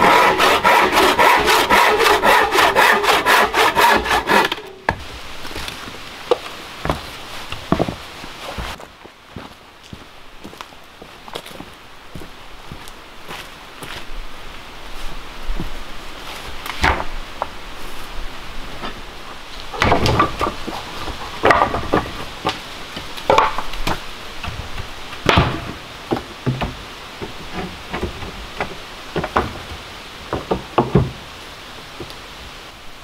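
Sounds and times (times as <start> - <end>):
firewood knocking and clattering: 16.7 - 17.1, 19.7 - 31.2.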